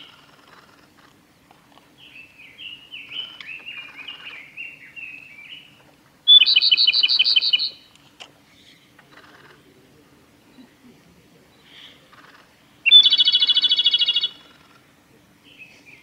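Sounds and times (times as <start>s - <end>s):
robin song with rattling trill: 2.0s - 8.0s, 12.8s - 14.8s.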